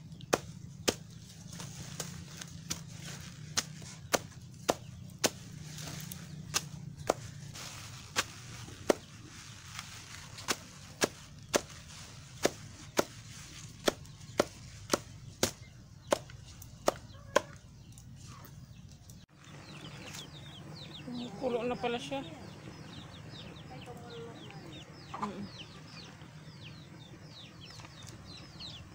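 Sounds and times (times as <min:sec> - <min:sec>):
knife chopping stalks: 0:00.2 - 0:07.4, 0:08.1 - 0:09.1, 0:10.4 - 0:17.6.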